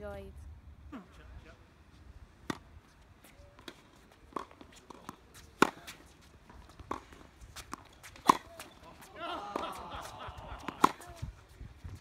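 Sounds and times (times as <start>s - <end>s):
tennis balls bouncing on hard court: 2.4s - 2.7s, 3.6s - 11.2s
tennis balls struck by rackets: 2.4s - 2.8s, 3.6s - 11.2s.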